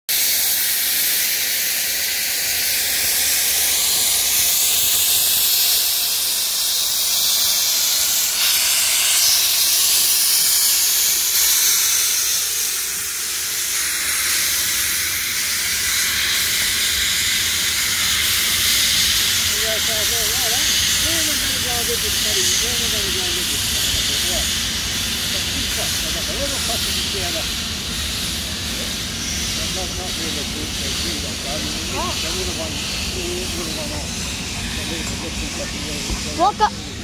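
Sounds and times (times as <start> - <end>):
steam hissing from locomotive: 0.1 - 37.0.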